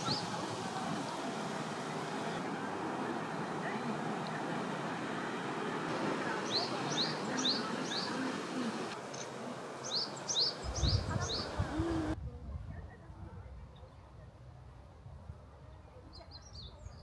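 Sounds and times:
songbird chirping: 0.0s - 11.8s, 15.7s - 17.0s
outdoor hush: 0.0s - 12.2s.

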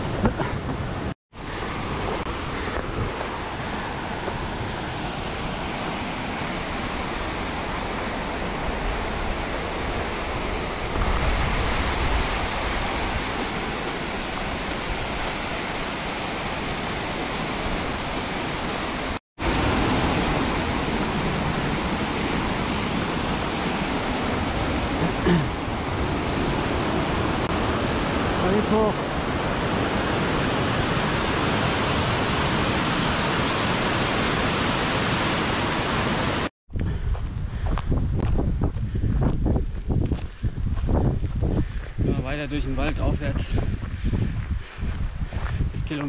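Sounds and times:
waterfall and stream rushing: 0.0s - 36.5s.

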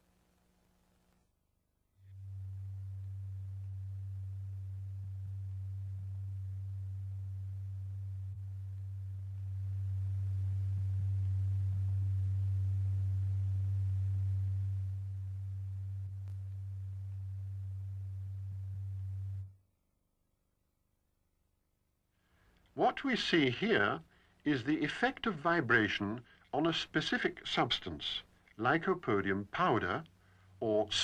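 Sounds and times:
low sine tone: 2.0s - 19.9s.

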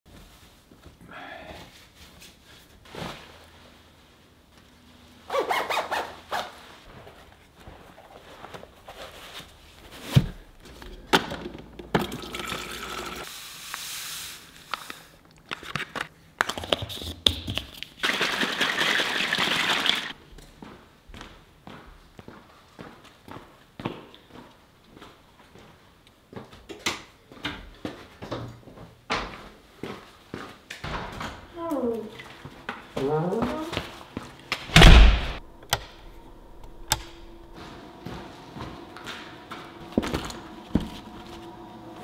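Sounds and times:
water running into plastic bottle: 11.9s - 13.2s, 18.0s - 20.1s
plastic bottle shaken: 17.9s - 20.1s.

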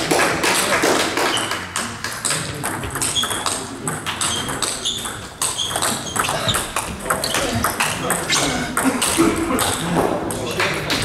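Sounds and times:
table tennis balls clicking: 1.0s - 11.0s.

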